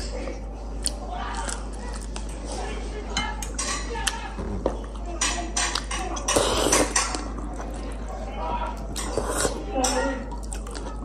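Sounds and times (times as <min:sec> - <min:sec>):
cutlery clinking against a bowl: 0:03.1 - 0:04.2, 0:05.1 - 0:07.4, 0:09.0 - 0:10.2
slurping noodles: 0:06.3 - 0:07.0, 0:09.0 - 0:09.7.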